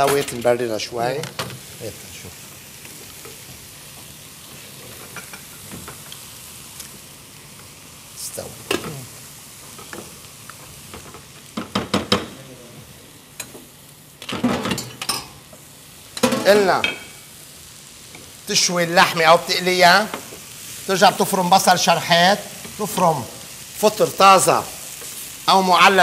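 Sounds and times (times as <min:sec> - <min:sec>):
onions sizzling in a pan: 0:00.0 - 0:26.0
spoon knocking and scraping pots: 0:14.2 - 0:15.4.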